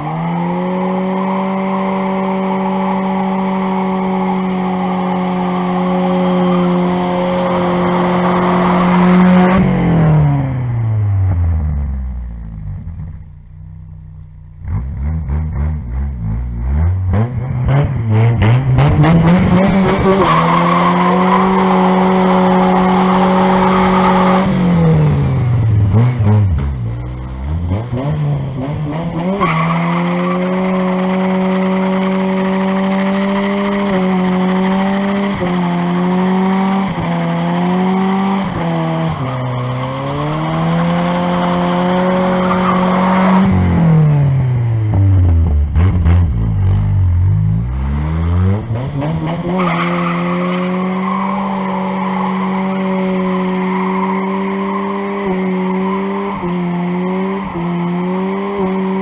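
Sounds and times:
car engine revving hard: 14.6s - 59.0s
tyres spinning in a burnout: 18.9s - 25.2s, 27.8s - 43.6s, 48.6s - 59.0s.

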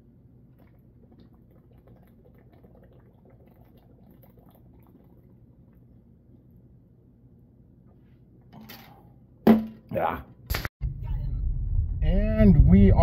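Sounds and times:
man gulping from a bottle: 0.6s - 5.9s.

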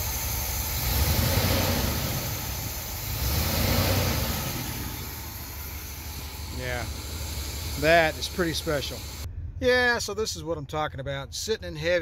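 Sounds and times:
car engine revving: 0.0s - 9.3s.

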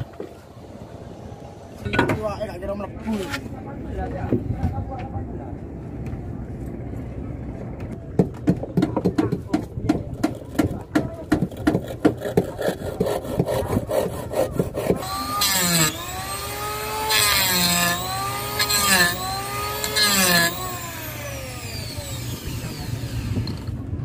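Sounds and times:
hand saw cutting wood: 10.2s - 23.6s
electric planer motor whine: 15.0s - 23.7s.

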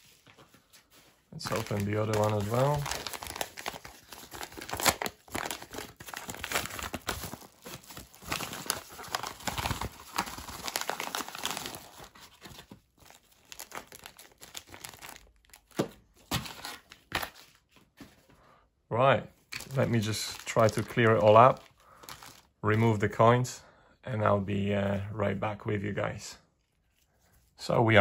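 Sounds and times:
coin packaging crinkling: 1.4s - 12.1s.

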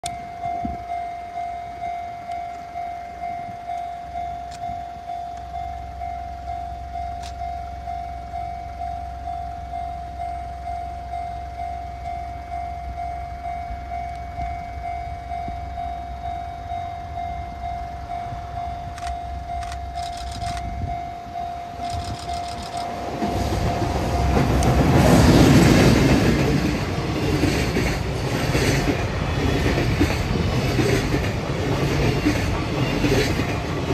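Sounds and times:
freight train rumble and wheel clatter: 0.0s - 33.9s
level-crossing bell ringing: 0.1s - 24.5s.

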